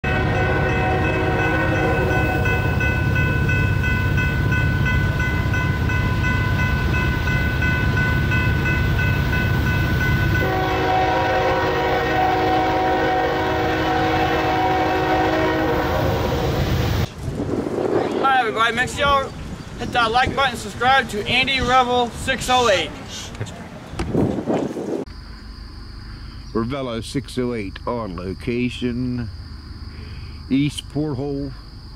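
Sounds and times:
locomotive air horn blast: 0:00.0 - 0:02.8, 0:10.4 - 0:17.1
passing train rumble: 0:00.0 - 0:29.9.

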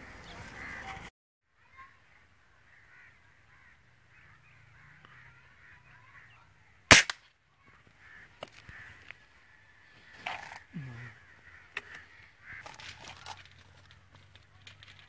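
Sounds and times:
small birds chirping: 0:01.6 - 0:06.9
loud gunshot: 0:06.9 - 0:07.2.

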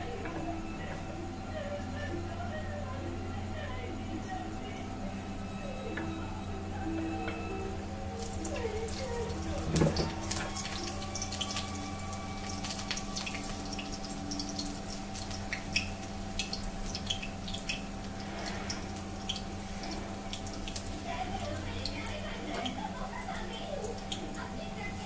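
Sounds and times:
oil sizzling and popping: 0:07.0 - 0:25.0.

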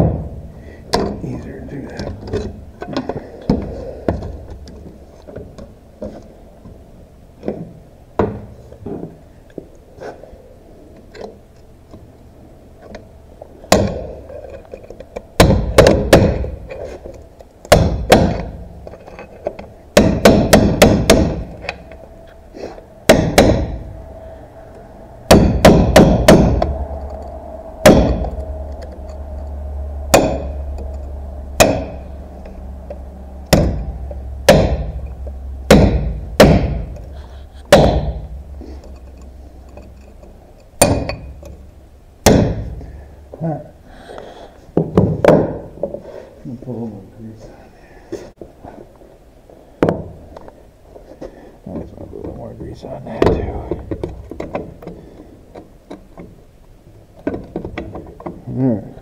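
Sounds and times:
hammer striking a metal punch: 0:13.7 - 0:14.1, 0:15.4 - 0:16.6, 0:17.7 - 0:18.6, 0:20.0 - 0:21.8, 0:23.1 - 0:23.9, 0:25.3 - 0:27.2, 0:27.8 - 0:29.0, 0:30.1 - 0:32.1, 0:32.9 - 0:37.1, 0:37.7 - 0:38.4, 0:40.8 - 0:41.6, 0:42.2 - 0:42.8.

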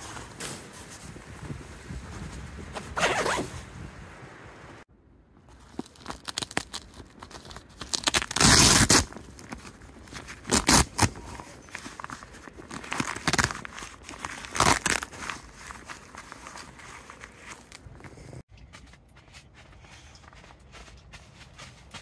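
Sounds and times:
gear rustling and crunching in snow: 0:00.0 - 0:03.8, 0:05.5 - 0:18.4.

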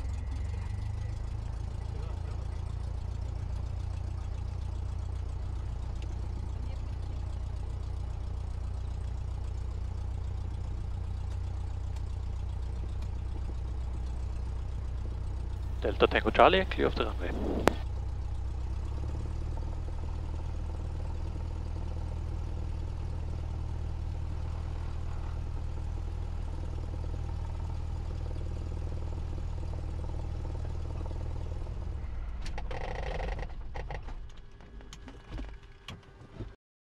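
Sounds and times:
aircraft piston engine drone: 0:15.6 - 0:17.8.

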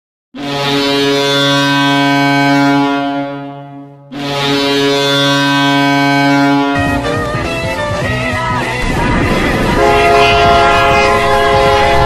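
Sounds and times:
ice hockey goal horn blasts: 0:00.4 - 0:07.4, 0:09.7 - 0:12.0.

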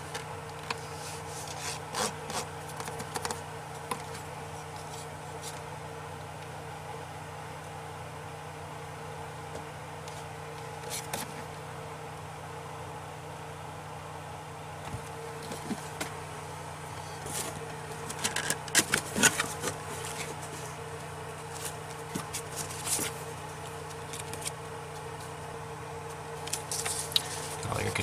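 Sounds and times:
paper and cardboard rustling: 0:00.0 - 0:05.6, 0:14.9 - 0:16.2, 0:17.2 - 0:20.8, 0:21.4 - 0:24.6, 0:26.5 - 0:28.0
steady low hum: 0:00.0 - 0:28.0.

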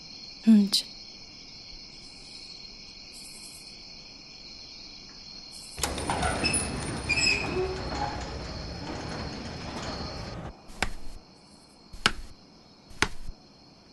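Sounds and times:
crickets chirring: 0:00.0 - 0:13.9
door opening: 0:05.8 - 0:11.2, 0:12.0 - 0:13.4.

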